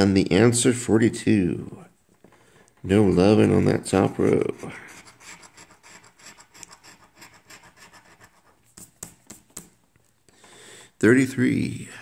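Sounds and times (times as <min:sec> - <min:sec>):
lottery ticket being scratched: 0:03.3 - 0:09.8.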